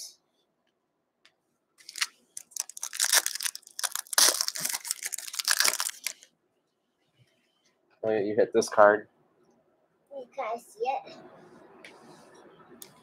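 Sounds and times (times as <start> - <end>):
plastic wrapper tearing and crinkling: 1.8 - 6.3.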